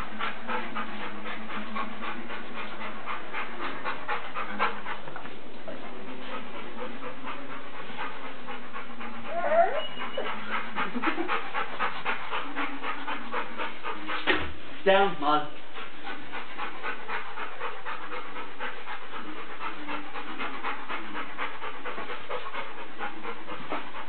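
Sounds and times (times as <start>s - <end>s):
dogs panting: 0.0s - 24.0s.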